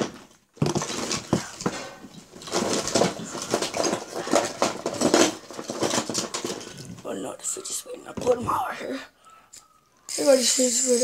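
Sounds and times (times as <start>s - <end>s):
small hard objects clattering: 0.0s - 8.5s.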